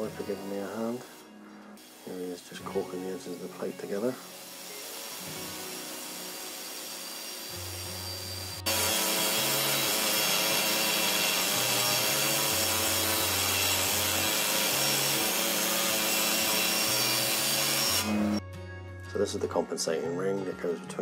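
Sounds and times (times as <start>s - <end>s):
pneumatic hammer chiselling steel: 8.6s - 18.4s.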